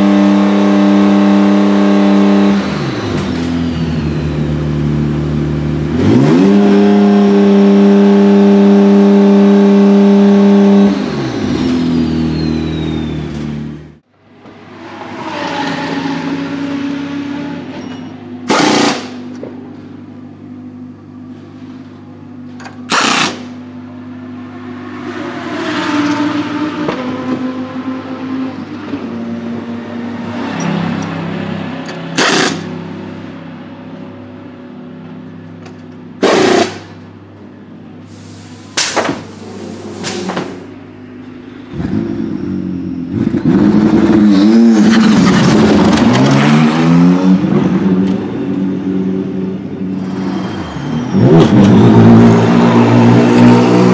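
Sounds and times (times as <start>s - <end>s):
car engine idling and revving: 0.0s - 53.9s.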